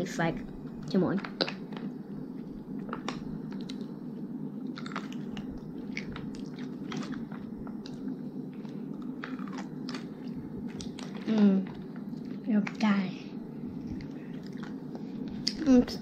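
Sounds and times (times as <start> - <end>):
pickle crunching: 8.6 - 11.3.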